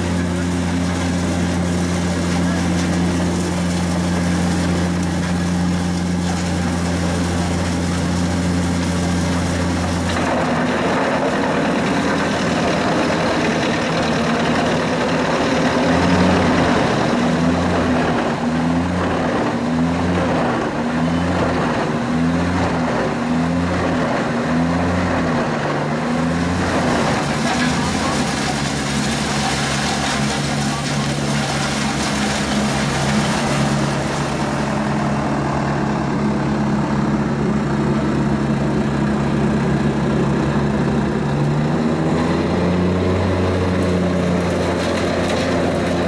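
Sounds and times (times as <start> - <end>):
wood chipper chipping logs: 0.0 - 46.0.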